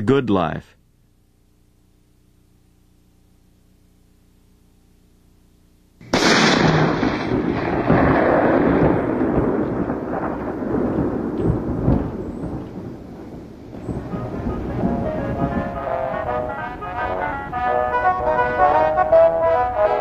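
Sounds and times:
faint low hum: 0:00.0 - 0:06.1
thunder clap and rumble: 0:06.1 - 0:18.7.

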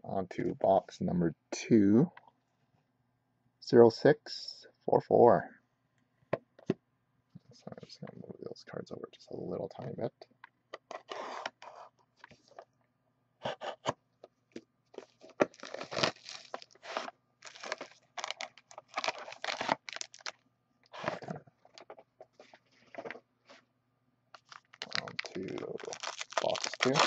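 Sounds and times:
plastic shrink wrap tearing: 0:15.0 - 0:20.4, 0:24.4 - 0:27.0.

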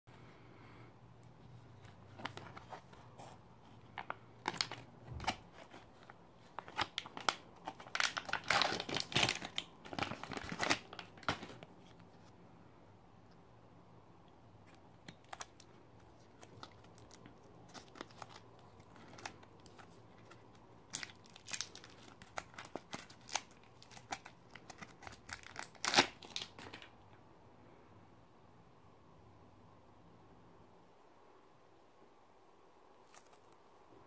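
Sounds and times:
plastic wrapper crinkling and tearing: 0:03.9 - 0:12.1, 0:14.7 - 0:26.9, 0:33.0 - 0:33.7.

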